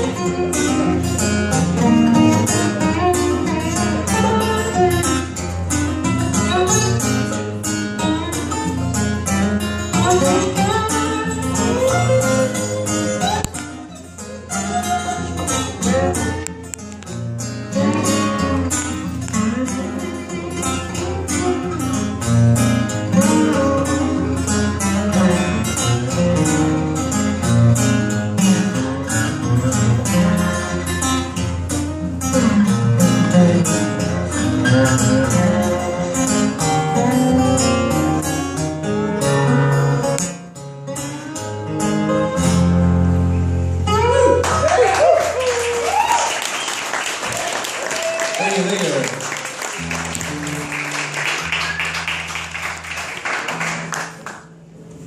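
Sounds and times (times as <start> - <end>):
acoustic guitars playing: 0.0 - 55.0
audience applause and cheering: 44.2 - 54.4.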